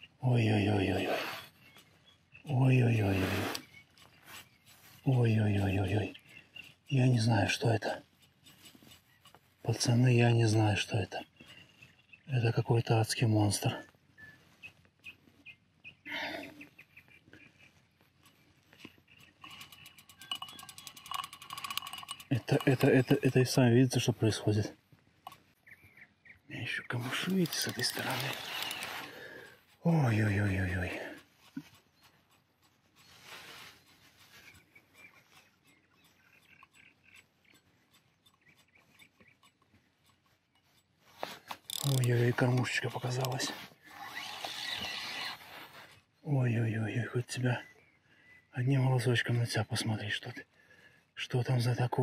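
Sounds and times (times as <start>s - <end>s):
fishing reel ticking: 19.2s - 23.3s, 27.2s - 29.2s, 35.6s - 45.4s
faint ticks: 30.8s - 43.5s.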